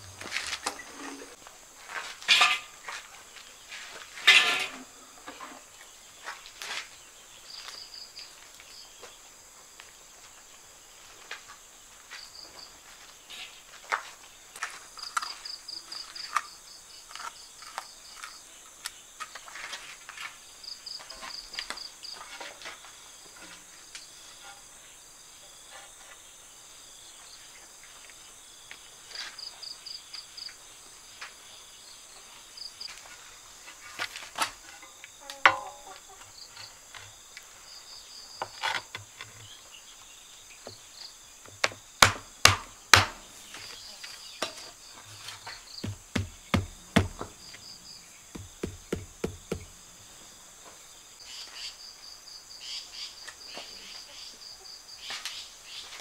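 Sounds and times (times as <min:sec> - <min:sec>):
insects chirping: 0:00.0 - 0:56.0
tile tapped into place: 0:48.4 - 0:49.7.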